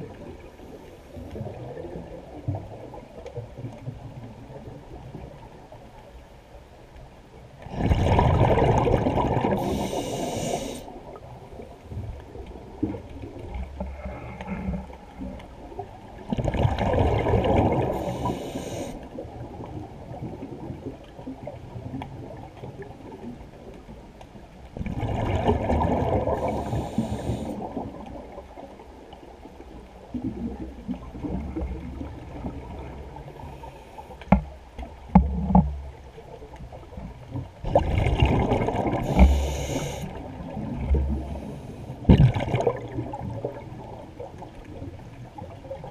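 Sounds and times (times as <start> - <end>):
exhaled bubbles gurgling underwater: 0.0 - 6.2, 7.4 - 45.9
watery hiss: 9.5 - 11.0, 17.7 - 19.0, 26.3 - 27.8, 38.9 - 40.2.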